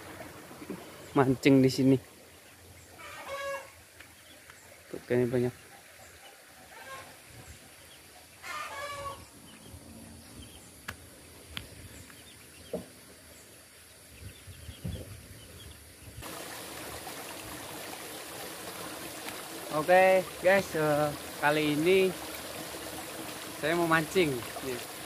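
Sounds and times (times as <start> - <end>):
chickens clucking: 3.0 - 3.7, 8.4 - 9.2.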